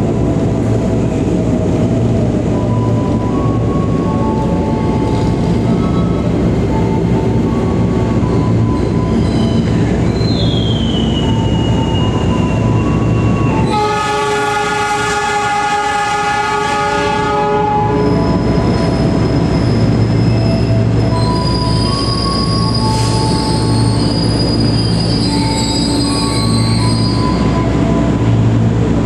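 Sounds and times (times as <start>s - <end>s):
diesel locomotive rumbling: 0.0s - 29.0s
train wheel squeal: 2.5s - 14.0s, 17.9s - 28.4s
locomotive horn blast: 13.6s - 18.3s.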